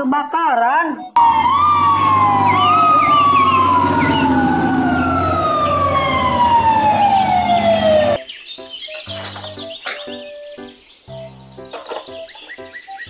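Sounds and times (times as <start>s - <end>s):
fire engine siren wailing: 1.2s - 8.2s
second siren: 1.2s - 8.2s
truck engine rumble: 1.2s - 8.2s.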